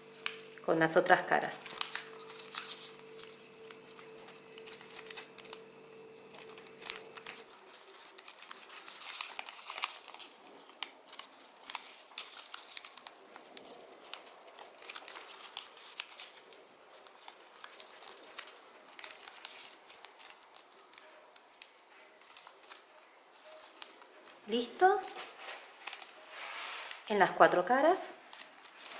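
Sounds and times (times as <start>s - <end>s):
faint steady hum: 0.0s - 27.0s
paper crinkling and rustling: 1.4s - 28.9s.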